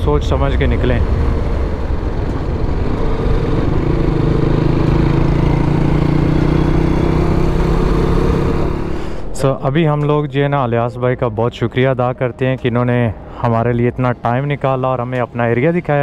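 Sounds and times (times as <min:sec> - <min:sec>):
motorcycle engine running: 0:00.0 - 0:09.0
wind and road noise: 0:00.0 - 0:16.0.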